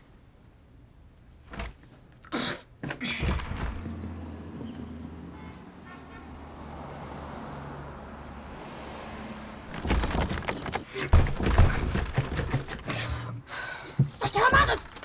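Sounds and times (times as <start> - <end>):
car passing on street: 3.8 - 10.9
clattering knocks: 9.7 - 15.0.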